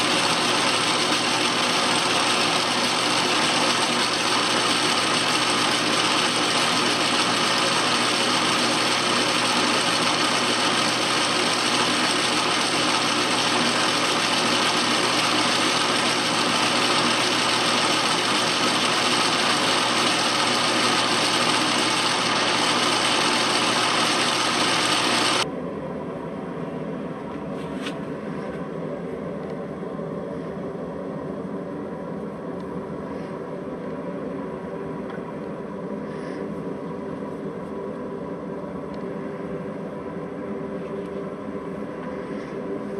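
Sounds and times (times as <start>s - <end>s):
metal lathe running: 0.0s - 25.4s.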